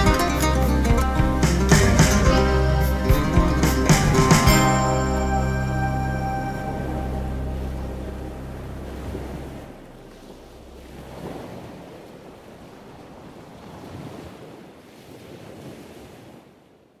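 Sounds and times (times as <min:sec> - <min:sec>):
music track: 0:00.0 - 0:10.8
waves washing in: 0:00.0 - 0:17.0.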